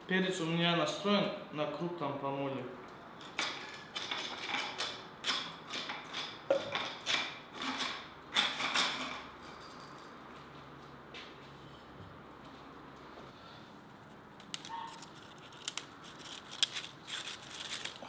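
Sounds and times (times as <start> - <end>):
pepper mill grinding: 3.2 - 9.3, 14.4 - 18.0.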